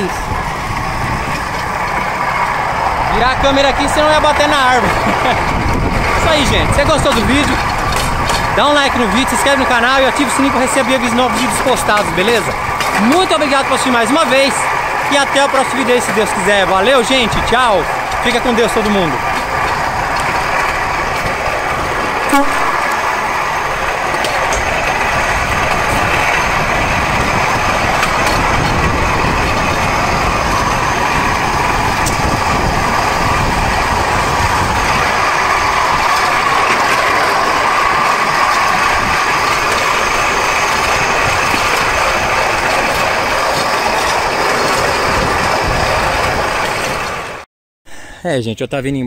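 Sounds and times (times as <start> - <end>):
wheels clattering on rails: 0.0 - 47.5.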